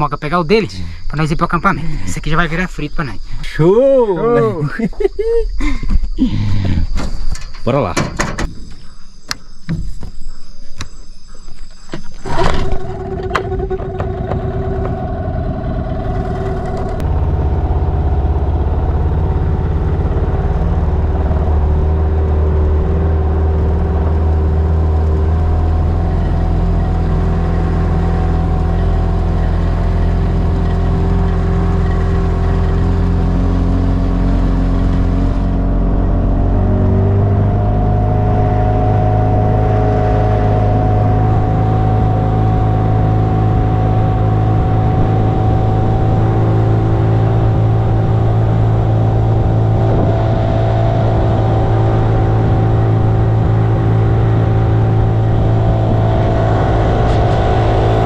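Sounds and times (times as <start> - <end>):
outboard motor running: 12.0 - 58.0
motor clatter: 12.2 - 21.6.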